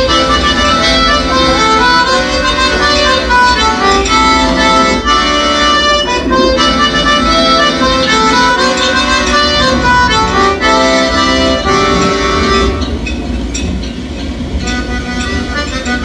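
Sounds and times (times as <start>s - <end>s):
accordion dance tune: 0.0s - 13.1s, 14.6s - 16.0s.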